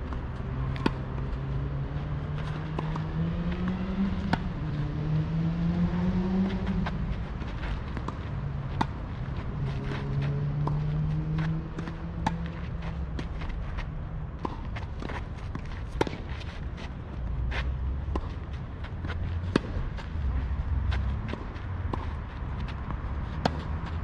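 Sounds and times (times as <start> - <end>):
vehicle engine hum: 0.0 - 24.0
tennis ball bouncing: 0.1 - 1.4, 2.4 - 4.7, 6.4 - 13.6, 14.4 - 16.6, 17.6 - 24.0
tennis ball struck by racket: 3.7 - 4.5.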